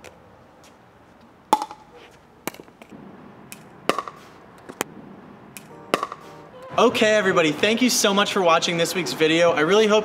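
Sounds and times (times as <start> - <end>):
paddle striking pickleball: 1.5 - 4.9, 5.6 - 6.4.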